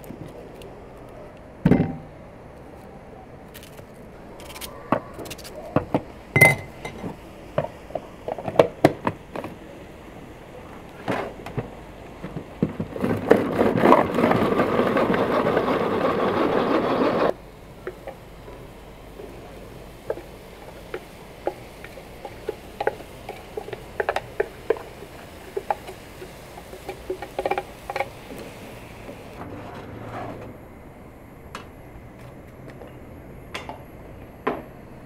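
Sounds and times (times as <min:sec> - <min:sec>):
hands clicking utensils and food: 0:20.9 - 0:28.2.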